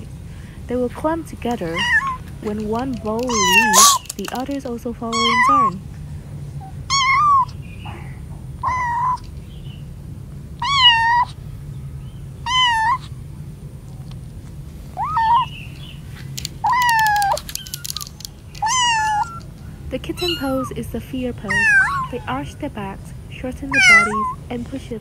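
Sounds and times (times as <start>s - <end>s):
kittens meowing: 1.4s - 5.8s, 6.6s - 9.4s, 10.6s - 11.4s, 12.4s - 13.2s, 14.9s - 15.6s, 16.5s - 22.8s, 23.4s - 24.6s.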